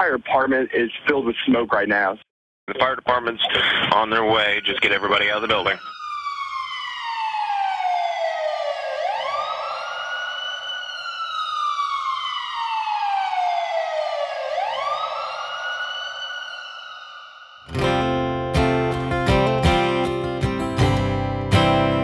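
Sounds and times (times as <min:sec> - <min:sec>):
emergency vehicle siren wailing: 0:04.0 - 0:18.8.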